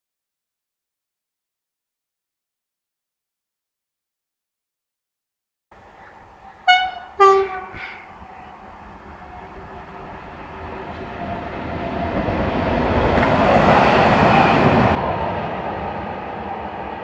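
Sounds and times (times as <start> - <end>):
freight train rumbling on rails: 5.8 - 17.0.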